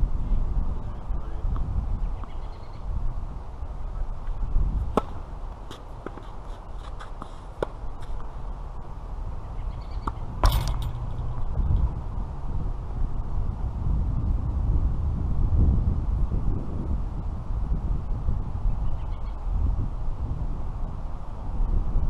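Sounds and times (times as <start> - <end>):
wind rumble on microphone: 0.0 - 22.0
tennis racket strikes and ball bounces: 4.9 - 8.3, 10.0 - 11.0.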